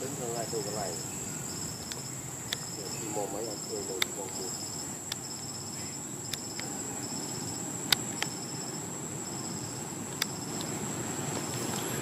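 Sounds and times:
high-pitched whine: 0.0s - 12.0s
insects chirping in pulsed trills: 0.0s - 12.0s
sharp clicks: 3.9s - 4.5s, 6.3s - 8.4s.

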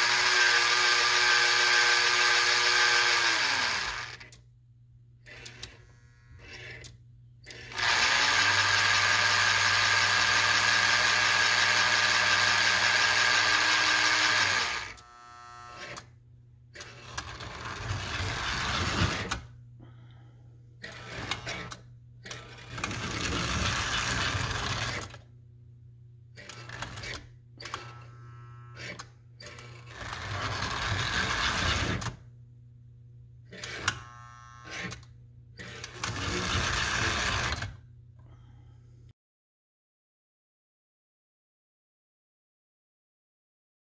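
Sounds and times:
toy locomotive motor running: 0.0s - 4.3s, 7.5s - 16.1s, 16.8s - 19.4s, 20.8s - 25.2s, 26.4s - 32.1s, 35.6s - 37.7s
low steady hum: 4.2s - 7.7s, 24.4s - 26.4s, 32.2s - 35.6s.

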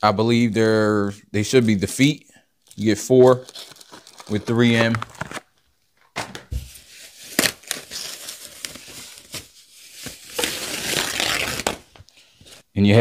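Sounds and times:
packaging crinkling and rustling: 2.7s - 12.6s.

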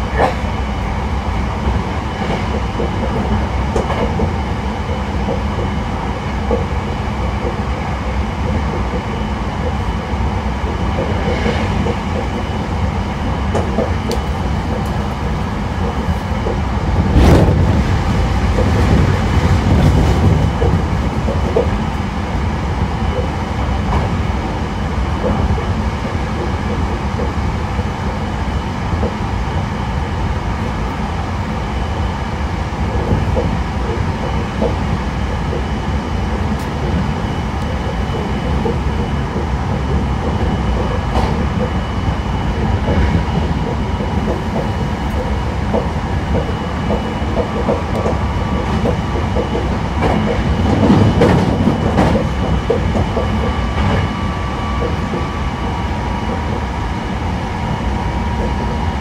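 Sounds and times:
train wheels rumbling on rail: 0.0s - 59.0s
faint rail-joint clacks: 0.1s - 0.4s, 1.6s - 10.0s, 10.7s - 12.6s, 13.3s - 21.8s, 32.9s - 56.7s, 58.3s - 59.0s.

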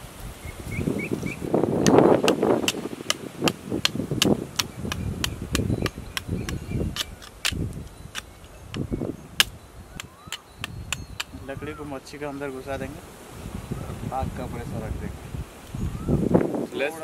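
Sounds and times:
machete chopping wooden stick: 1.8s - 11.3s.

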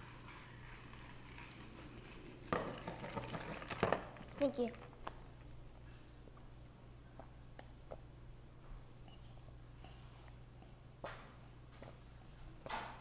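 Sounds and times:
low room hum: 0.0s - 13.0s
child gulping water: 2.7s - 4.1s.

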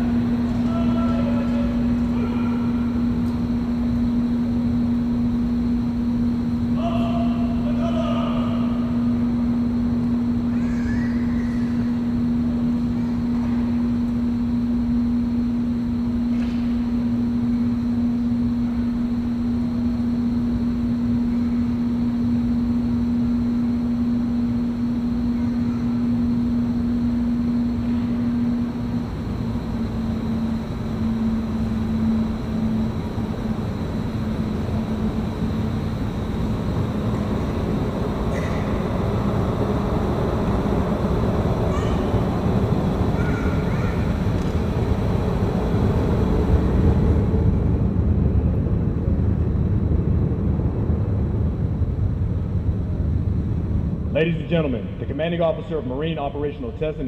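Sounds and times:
machine drone: 0.0s - 57.0s.

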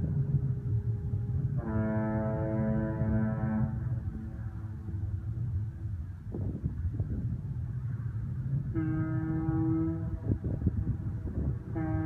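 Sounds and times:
steady low rumble: 0.0s - 12.0s
foghorn blast: 1.4s - 5.2s, 8.7s - 10.6s, 11.6s - 12.0s.

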